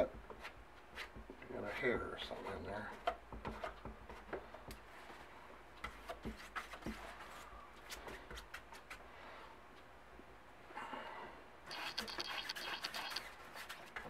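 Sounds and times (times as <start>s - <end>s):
small tool clicks: 11.7s - 13.2s
hands rubbing on silk: 11.7s - 13.9s.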